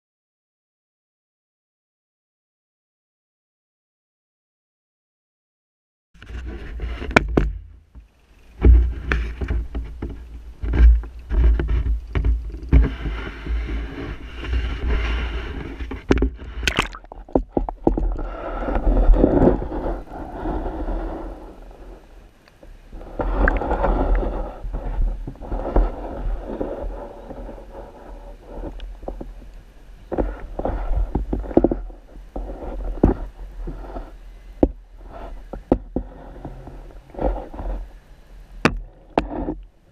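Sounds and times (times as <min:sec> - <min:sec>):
water rushing and gurgling: 0:11.6 - 0:31.5.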